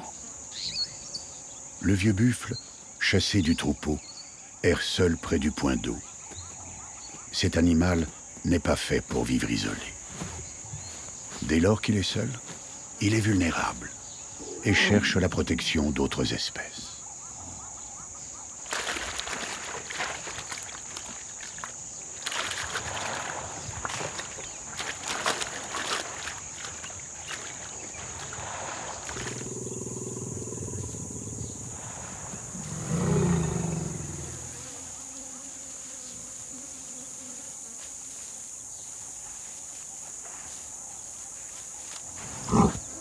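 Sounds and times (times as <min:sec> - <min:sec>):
high insect buzz: 0:00.0 - 0:43.0
scuffling and rustling movement: 0:09.5 - 0:12.9
large animal deep calls: 0:14.4 - 0:15.3, 0:29.1 - 0:34.6.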